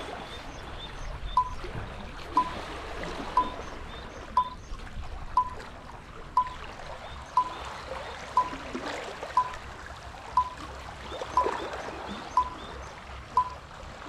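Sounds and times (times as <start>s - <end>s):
sea water against rocky shore: 0.0s - 14.0s
short electronic beeps: 1.3s - 1.6s, 2.4s - 2.6s, 3.4s - 3.6s, 4.4s - 4.6s, 5.4s - 5.6s, 6.4s - 6.6s, 8.4s - 8.6s, 9.4s - 9.6s, 10.4s - 10.6s, 11.4s - 11.6s, 12.3s - 12.6s, 13.4s - 13.6s.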